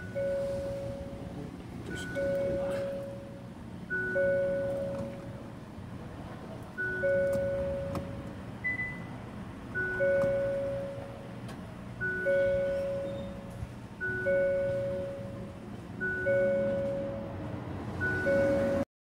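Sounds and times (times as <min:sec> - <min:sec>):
two-note chime: 0:00.0 - 0:01.3, 0:01.9 - 0:05.2, 0:12.0 - 0:17.4, 0:18.0 - 0:18.8
low steady hum: 0:00.0 - 0:18.8.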